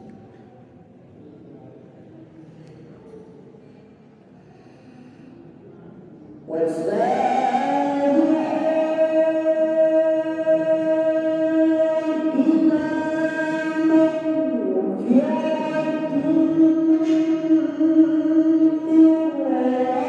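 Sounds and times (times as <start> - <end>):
man reciting melodically: 6.4 - 20.0.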